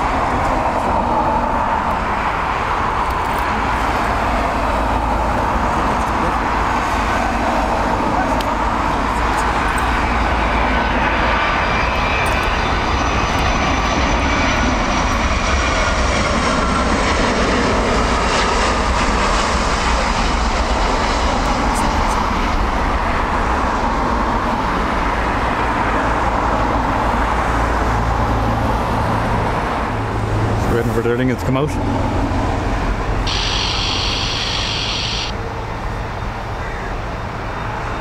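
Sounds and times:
jet airliner passing close: 0.0s - 38.0s
high engine whine falling: 33.0s - 35.8s.

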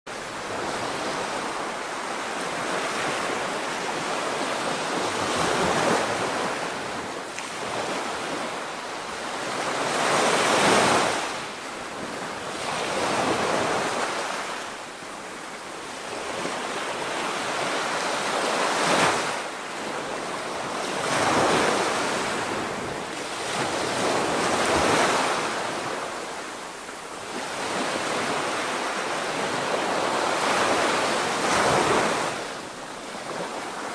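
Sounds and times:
waves breaking: 15.9s - 33.9s.

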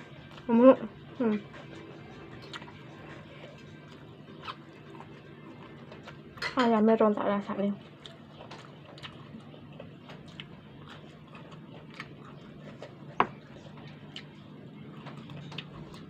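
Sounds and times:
chewing clicks and smacks: 2.4s - 2.8s, 8.0s - 16.0s.

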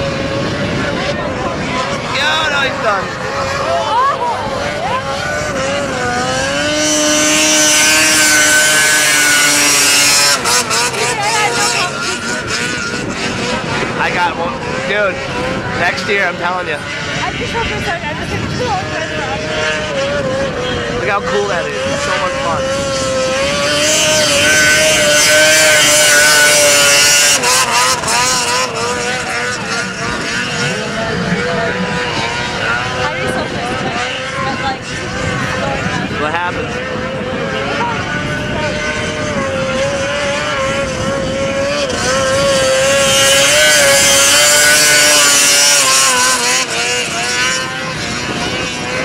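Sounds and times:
snowmobile engine at high revs: 0.0s - 49.0s.

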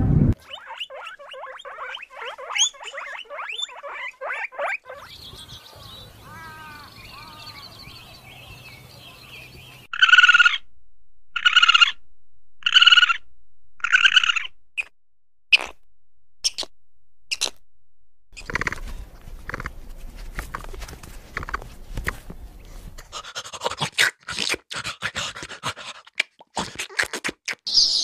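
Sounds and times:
loud harsh animal calls: 0.4s - 5.2s, 5.9s - 7.7s, 9.9s - 10.6s, 11.4s - 12.0s, 12.6s - 13.2s, 13.8s - 14.5s
soft warbling calls: 0.4s - 7.6s.

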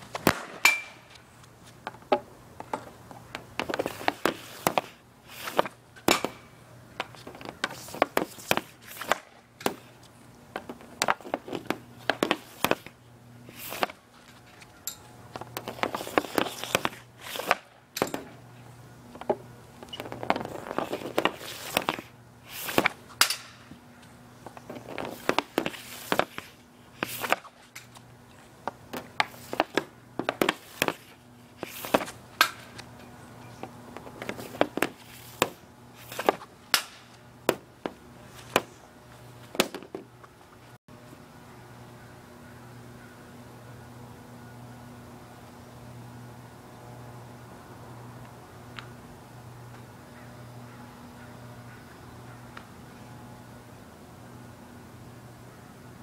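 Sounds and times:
hockey stick slapping puck: 3.4s - 6.4s, 7.0s - 9.8s, 10.6s - 12.9s, 13.5s - 14.0s, 15.4s - 18.3s, 20.0s - 23.6s, 24.7s - 27.5s, 28.9s - 32.8s, 34.0s - 38.7s.

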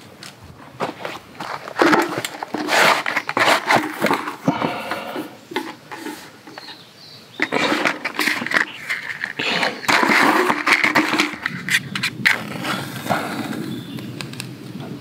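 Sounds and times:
firewood knocking and rustling: 0.0s - 4.7s, 5.4s - 12.4s.

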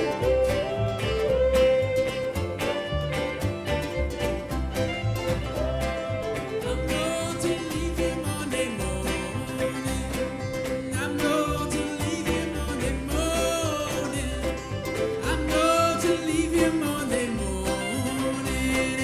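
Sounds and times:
bass keeping a steady pulse: 0.0s - 6.9s
acoustic guitars: 0.0s - 19.0s
banjo: 0.0s - 19.0s
fiddles playing sliding melody: 0.0s - 19.0s.

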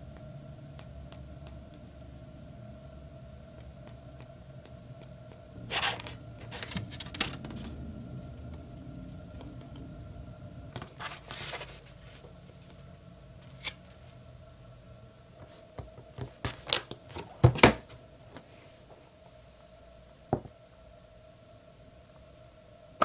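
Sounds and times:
faint steady hum: 0.0s - 23.0s
paper rustling and scraping on table: 5.7s - 7.8s, 10.8s - 12.3s.

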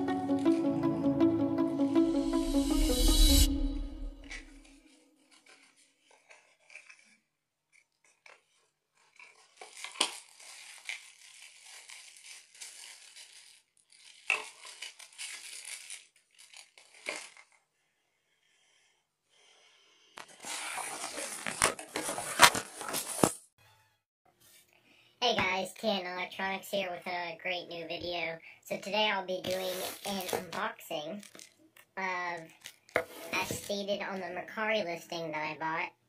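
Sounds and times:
plastic and paper packaging crinkling: 4.8s - 17.8s, 20.2s - 23.4s, 29.4s - 34.4s.

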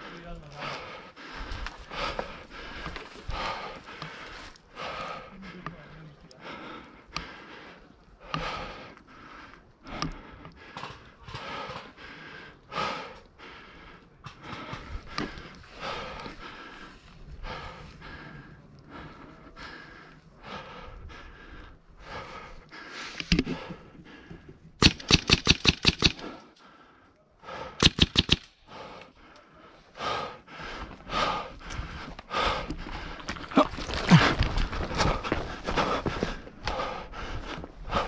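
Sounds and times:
breathing: 0.0s - 38.0s
airsoft gun rapid shots: 24.8s - 26.4s, 27.8s - 28.5s.

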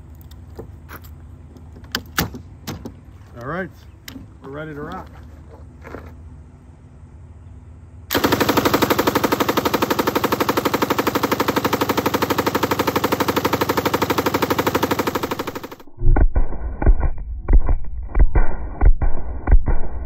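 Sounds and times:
machine gun firing full-auto: 8.1s - 15.9s.

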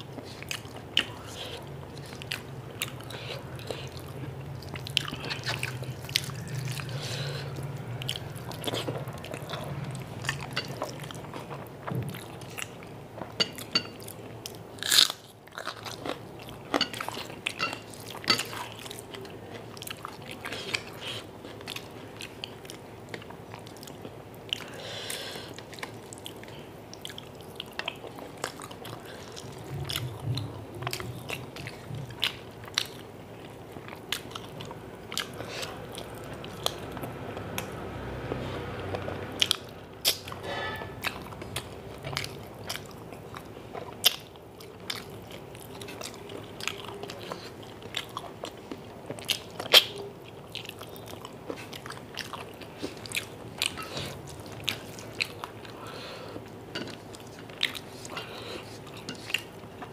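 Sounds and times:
wet chewing: 25.5s - 59.9s.

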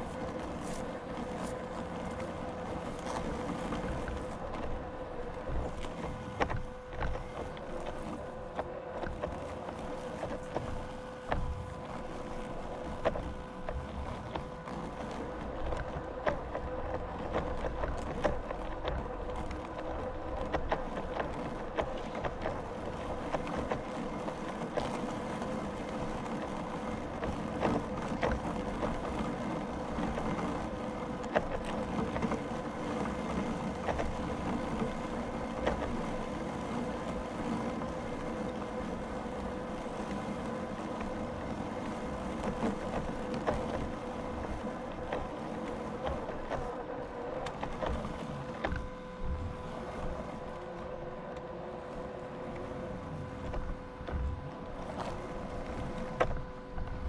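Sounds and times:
small motor humming: 0.0s - 57.0s.

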